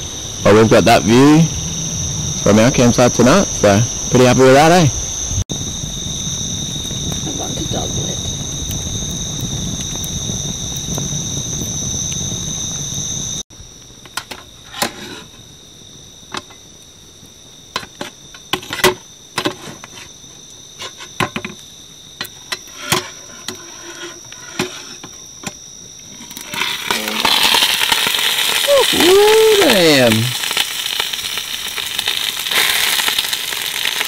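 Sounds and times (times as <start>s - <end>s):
crickets trilling: 0.0s - 34.0s
rising hiss: 26.7s - 34.0s.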